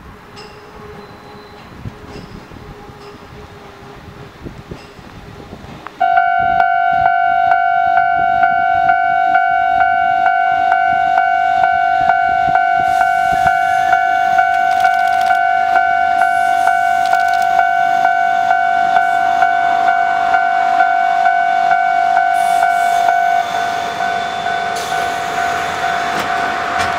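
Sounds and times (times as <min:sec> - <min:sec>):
electric train approaching: 0:00.0 - 0:26.9
level crossing alarm ringing: 0:06.0 - 0:26.9.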